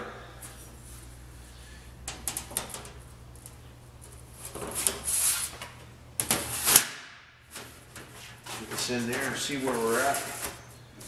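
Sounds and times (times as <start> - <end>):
metal sheet flexing and scraping: 8.2 - 10.6.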